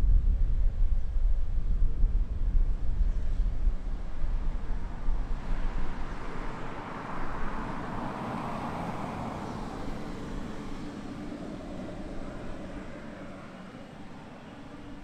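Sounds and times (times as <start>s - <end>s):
wind rumble on microphone: 0.0s - 15.0s
jet engines taxiing: 4.0s - 15.0s.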